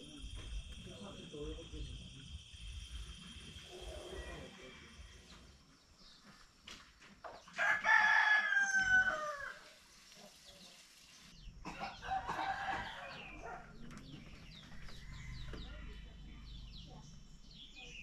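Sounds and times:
rooster crowing: 7.6s - 9.8s, 12.0s - 13.6s.

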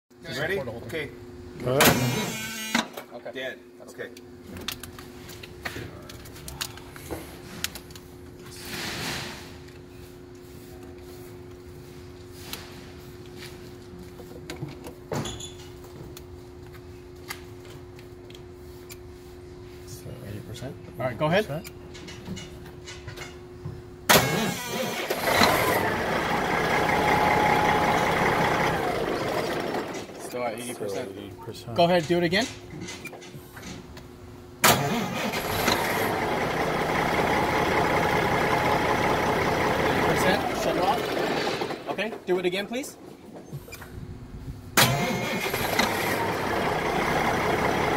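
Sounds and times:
diesel engine idling: 24.8s - 30.2s, 35.4s - 41.8s, 45.0s - 47.9s.

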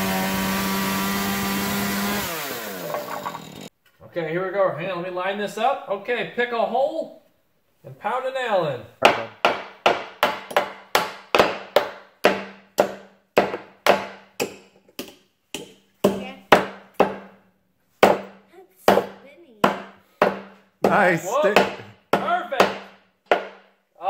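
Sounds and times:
hammers driving nails into wood: 9.0s - 17.4s, 18.0s - 23.8s.

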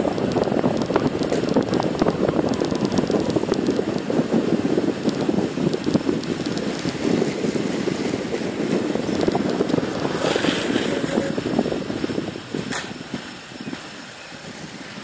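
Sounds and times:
longboard wheels rumbling on asphalt: 0.0s - 15.0s
wind buffeting microphone: 0.0s - 15.0s
short sharp scrape: 10.2s - 11.3s.

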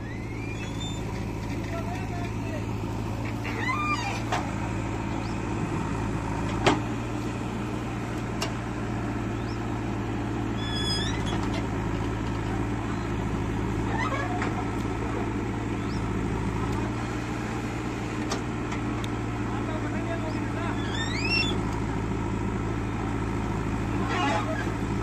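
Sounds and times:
backhoe digging soil: 0.0s - 21.8s, 23.1s - 25.0s
diesel engine running: 0.0s - 25.0s.

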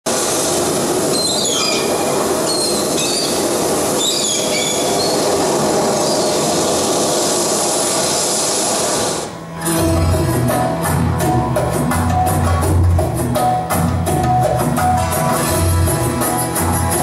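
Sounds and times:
high squeals sliding downward: 1.0s - 9.9s.

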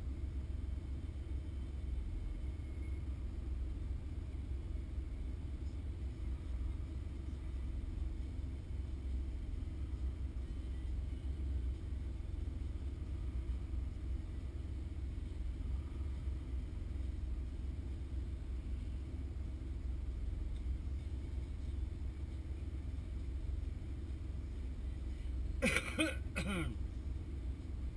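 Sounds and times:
car engine idling: 0.0s - 27.9s.

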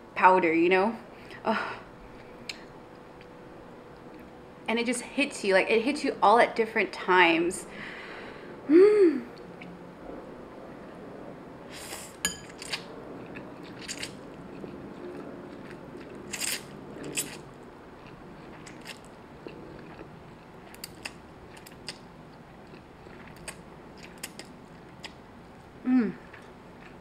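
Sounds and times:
wet chewing: 12.4s - 27.0s.

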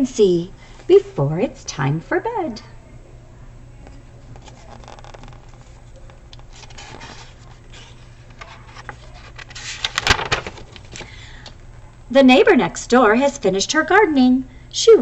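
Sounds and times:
faint steady hum: 0.0s - 15.0s
book pages rustling: 3.9s - 11.1s.

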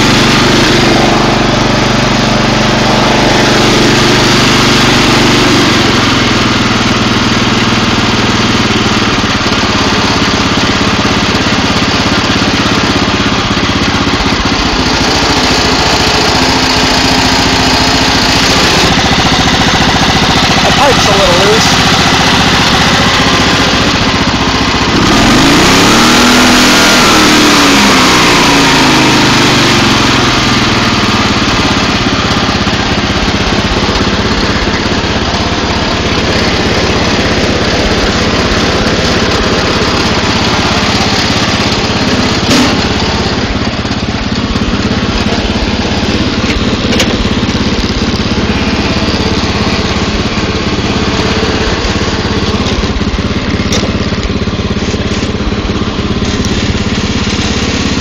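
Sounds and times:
riding mower engine running: 0.0s - 58.0s.

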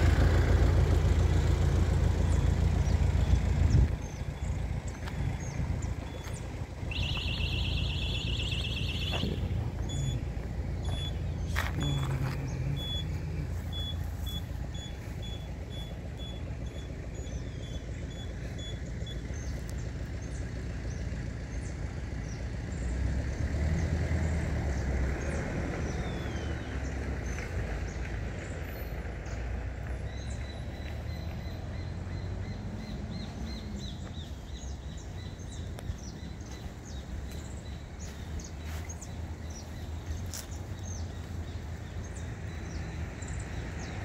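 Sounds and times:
birds chirping faintly: 0.0s - 44.0s
street traffic noise: 0.0s - 44.0s
vehicle passing: 0.0s - 44.0s
electronic beeps: 6.0s - 19.2s.

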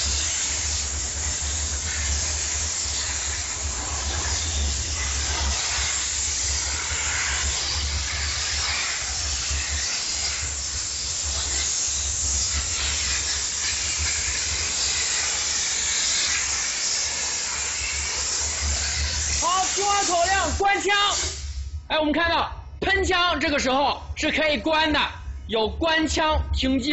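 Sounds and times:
steam cleaner hissing: 0.0s - 21.8s
low rumble: 21.4s - 26.9s.

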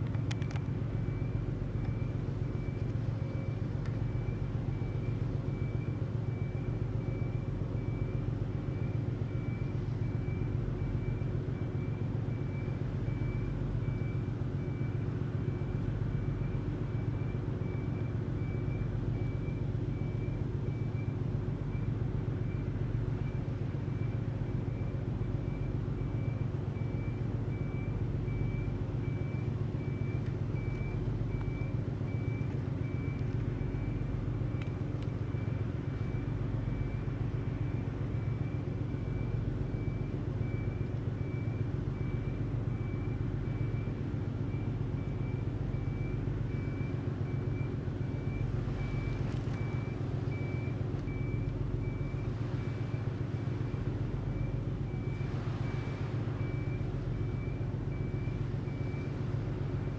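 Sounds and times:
ferry diesel engines humming: 0.0s - 59.9s
faint pulsing high tone: 25.5s - 59.9s.

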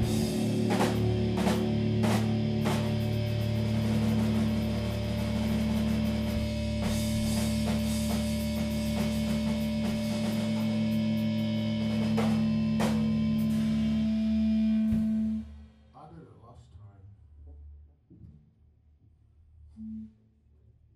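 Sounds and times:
cymbal crashes: 0.0s - 15.6s
drum strikes: 0.0s - 15.6s
electric guitars ringing chord: 0.0s - 15.7s.

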